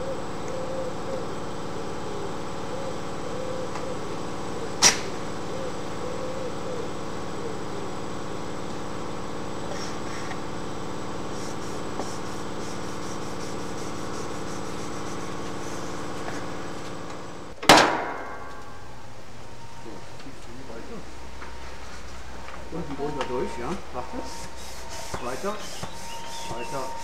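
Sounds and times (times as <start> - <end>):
mechanical hum: 0.0 - 27.0
loud sharp knock: 17.6 - 18.5.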